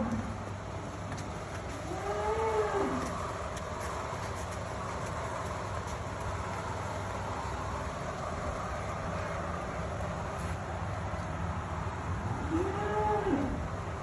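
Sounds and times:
steady background noise: 0.0s - 14.0s
cow mooing: 12.5s - 13.6s.

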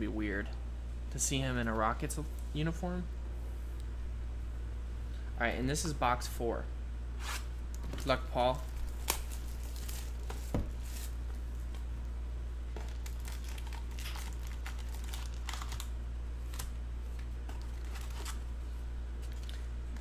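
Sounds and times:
steady low hum: 0.0s - 20.0s
cellophane and foil crinkling: 8.0s - 11.2s, 12.8s - 16.7s, 17.5s - 18.5s, 19.2s - 19.7s.

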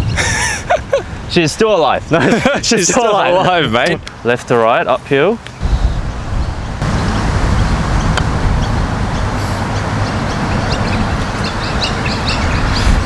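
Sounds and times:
wind rumble on microphone: 0.0s - 4.1s, 5.5s - 13.0s
small birds chirping: 5.4s - 13.0s.

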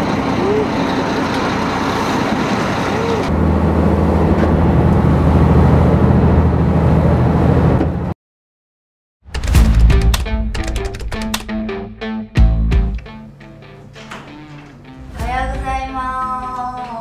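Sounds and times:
boat engine droning: 0.0s - 7.8s.

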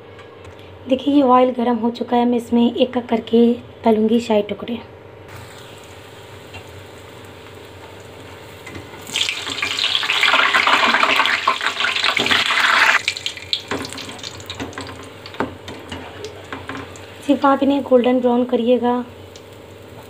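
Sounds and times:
bread sizzling in hot oil: 5.3s - 20.0s.

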